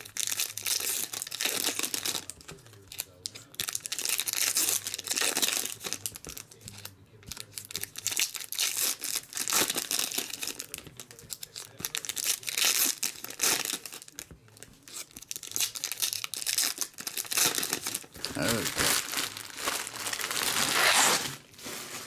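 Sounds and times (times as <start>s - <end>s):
foil wrappers crinkling and tearing: 0.0s - 22.0s.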